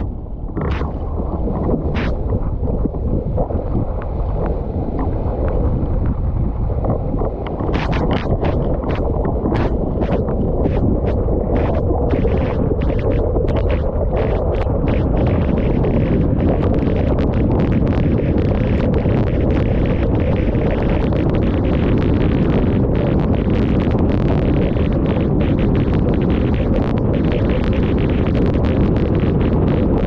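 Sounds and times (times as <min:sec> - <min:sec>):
water splashing against board: 0:00.0 - 0:22.7
wind buffeting microphone: 0:00.0 - 0:30.0.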